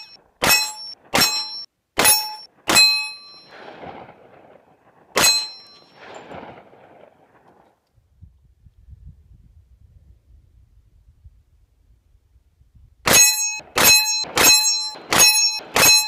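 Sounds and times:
bullets clanging on steel: 0.0 - 3.6, 5.2 - 6.3, 13.1 - 16.0
pistol shots: 0.0 - 4.4, 13.1 - 16.0.

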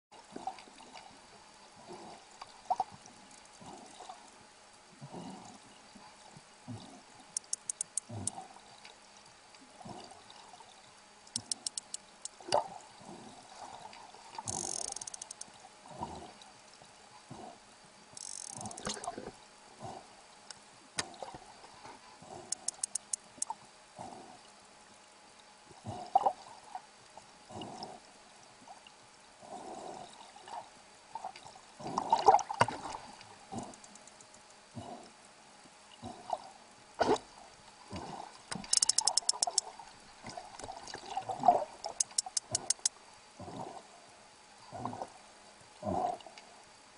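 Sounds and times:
sperm whale clicks: 7.4 - 8.4, 11.3 - 12.7, 14.4 - 15.5, 18.2 - 19.3, 22.4 - 23.6, 33.6 - 34.6, 38.5 - 40.8, 41.8 - 43.0
underwater sloshing: 18.2 - 24.3, 36.0 - 43.9.

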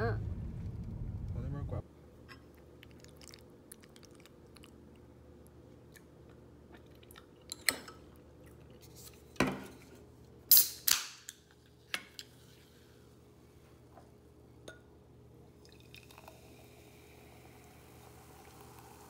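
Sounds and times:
low steady hum: 0.0 - 10.4.

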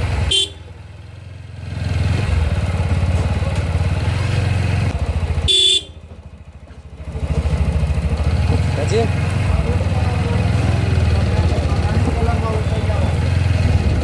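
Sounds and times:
motorbike engine running: 0.0 - 14.0
horn beeping: 0.2 - 0.7, 5.4 - 6.1.

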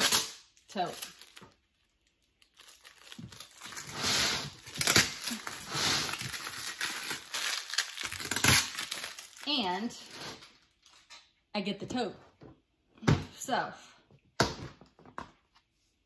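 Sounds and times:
packing tape crinkling and tearing: 0.0 - 11.2.

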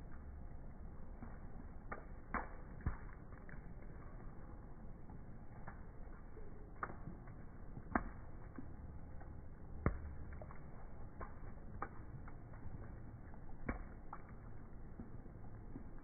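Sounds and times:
faint rain hiss: 0.0 - 16.0
raindrops tapping: 0.0 - 16.0.

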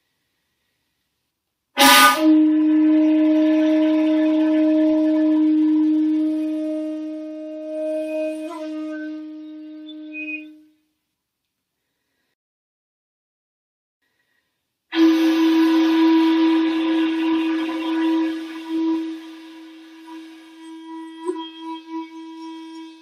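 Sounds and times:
breathy flute note: 1.8 - 10.9, 14.1 - 23.0.

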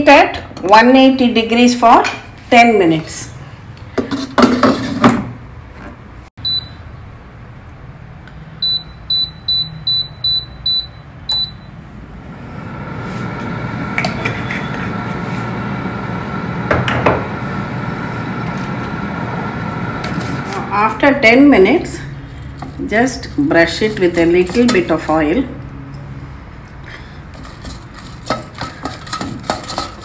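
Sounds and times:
control panel beeping: 8.6 - 11.7.

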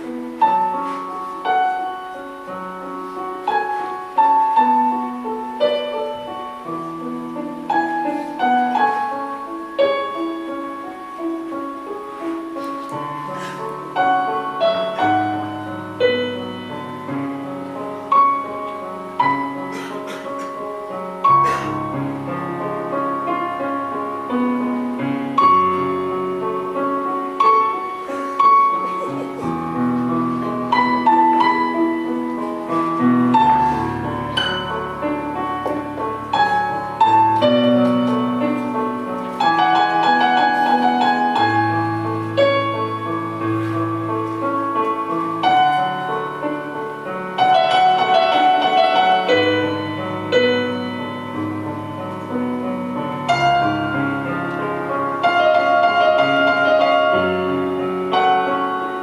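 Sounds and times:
piano melody: 0.0 - 59.0.

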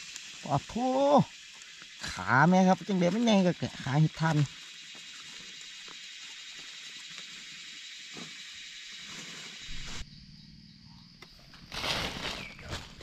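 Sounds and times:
night insects chorus: 0.0 - 13.0
dry leaves rustling: 9.1 - 10.0, 11.5 - 13.0.

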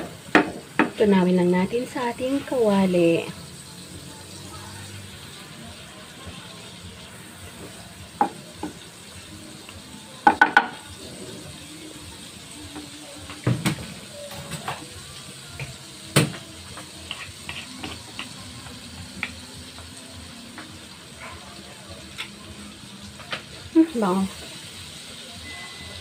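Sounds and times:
margarine sizzling in pan: 0.0 - 26.0
wooden spatula knocking and scraping: 16.3 - 18.4.

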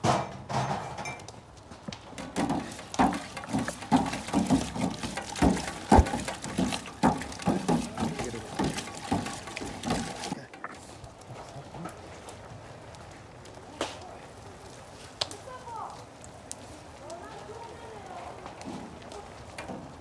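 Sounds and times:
metal ladle scraping a tin: 2.2 - 10.8.

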